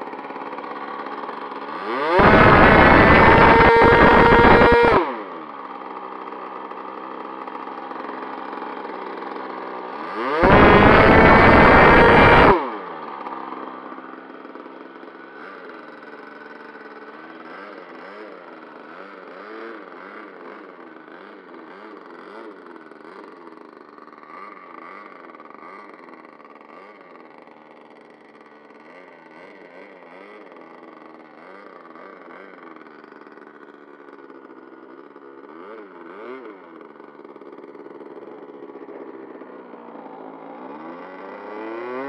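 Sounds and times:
model jet engine screaming: 0:00.0 - 0:08.3, 0:08.9 - 0:18.3, 0:19.0 - 0:33.7.

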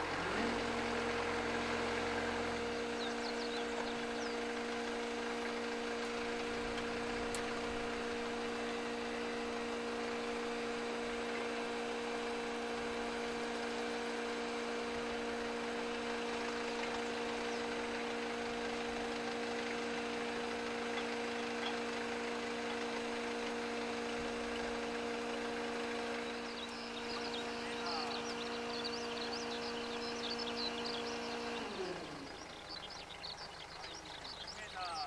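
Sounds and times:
small motor humming: 0:00.0 - 0:34.5
bird chirps: 0:02.5 - 0:04.6, 0:16.5 - 0:17.9, 0:26.2 - 0:35.0.

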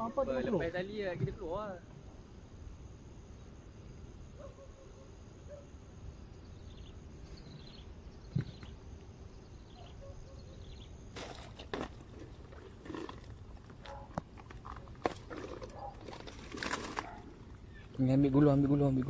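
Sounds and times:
low outdoor background: 0:00.0 - 0:19.0
faint bird chirps: 0:04.2 - 0:11.0, 0:17.6 - 0:18.1.

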